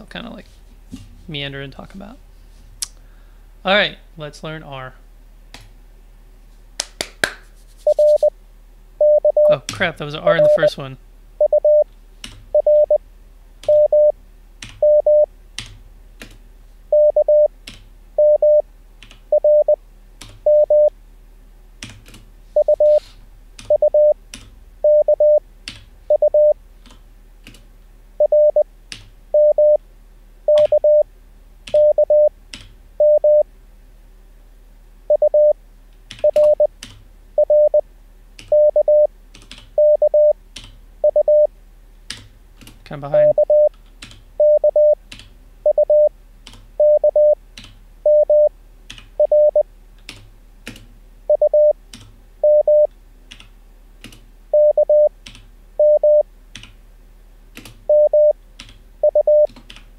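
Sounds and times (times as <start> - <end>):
morse code tones: 7.8 - 8.3, 9.0 - 9.7, 10.3 - 10.8, 11.4 - 11.8, 12.5 - 13.0, 13.7 - 14.2, 14.8 - 15.3, 16.9 - 17.5, 18.2 - 18.6, 19.3 - 19.8, 20.5 - 20.9, 22.6 - 23.0, 23.7 - 24.2, 24.8 - 25.4, 26.1 - 26.6, 28.2 - 28.6, 29.3 - 29.8, 30.5 - 31.1, 31.7 - 32.3, 33.0 - 33.4, 35.1 - 35.6, 36.2 - 36.7, 37.4 - 37.8, 38.5 - 39.1, 39.8 - 40.4, 41.0 - 41.5, 43.2 - 43.7, 44.4 - 45.0, 45.6 - 46.1, 46.8 - 47.4, 48.0 - 48.5, 49.2 - 49.6, 51.3 - 51.8, 52.4 - 52.9, 54.5 - 55.1, 55.8 - 56.2, 57.9 - 58.4, 59.0 - 59.5
computer keyboard clicks: 39.3 - 39.7, 47.6 - 47.8, 59.4 - 59.9.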